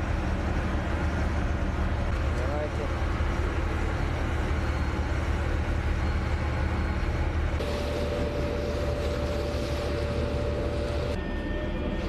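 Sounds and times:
low machinery rumble: 0.0 - 12.0.

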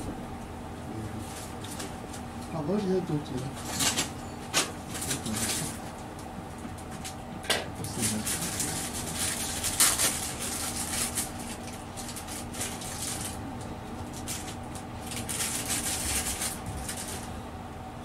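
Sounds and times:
steady electrical hum: 0.0 - 18.0
packaging rustling: 7.8 - 13.4, 14.0 - 17.3.

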